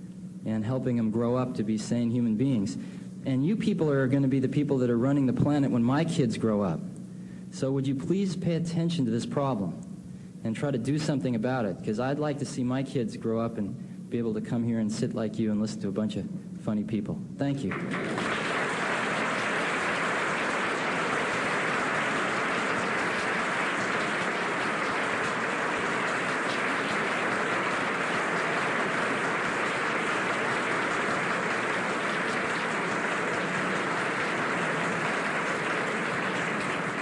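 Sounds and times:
audience applauding: 17.7s - 37.0s.

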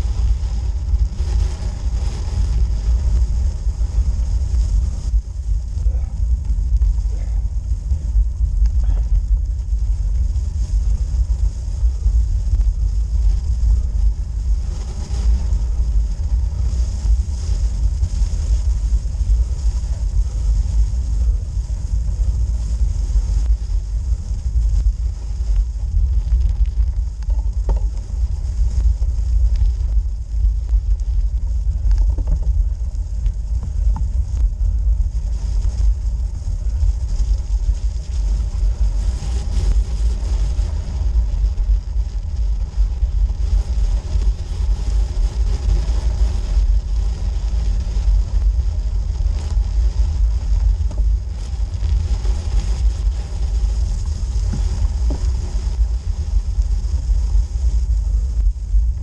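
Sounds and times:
bike tyres rolling on rough surface: 0.0s - 59.0s
wind on microphone: 0.0s - 59.0s
faint ticks: 6.3s - 13.8s, 20.5s - 42.7s.

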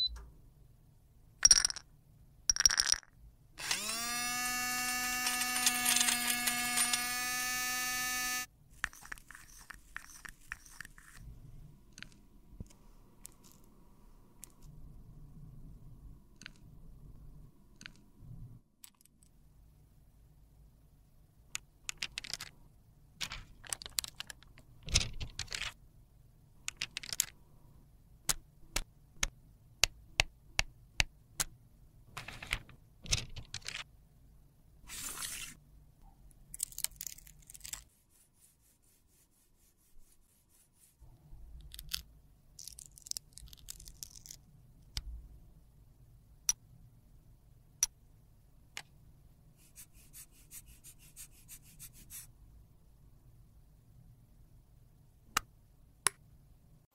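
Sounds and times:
tools clicking and tapping: 4.9s - 7.3s, 8.8s - 11.2s
spatula scraping powder: 8.9s - 11.2s, 37.7s - 41.0s
paper rustling and tearing: 34.9s - 35.6s.

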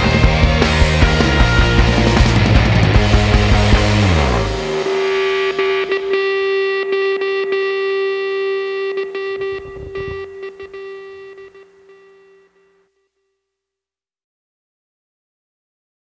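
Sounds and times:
rock music: 0.0s - 12.2s
electric guitar held note: 4.0s - 12.7s.

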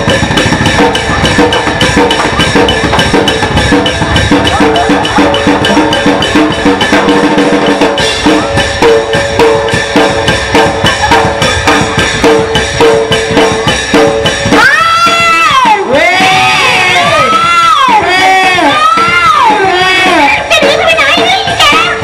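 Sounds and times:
mallet xylophone melody: 0.0s - 15.5s
drums: 0.0s - 22.0s.

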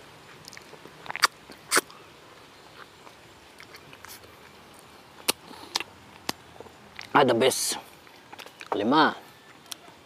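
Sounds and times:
faint chewing: 0.2s - 7.2s, 7.8s - 10.0s
sucking and lip-smacking: 0.3s - 2.0s, 2.7s - 7.2s, 8.2s - 8.8s.

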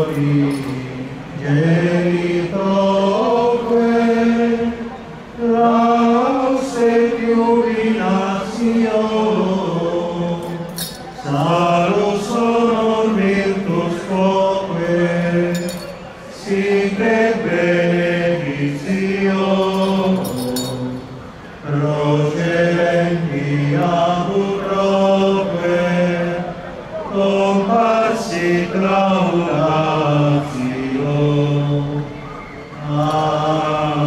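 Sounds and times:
men chanting a hymn: 0.0s - 34.0s.

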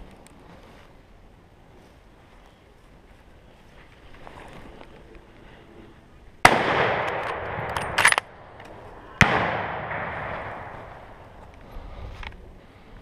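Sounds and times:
gunshots with echo: 6.5s - 8.4s, 9.2s - 11.4s.

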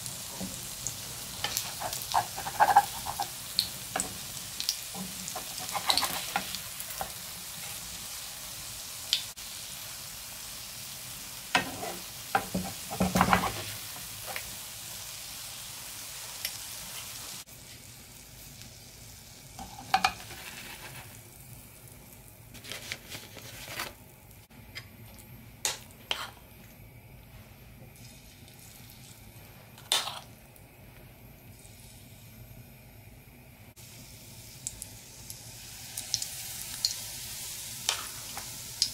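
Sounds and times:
batter sizzling in hot oil: 0.0s - 24.5s, 33.7s - 38.9s.

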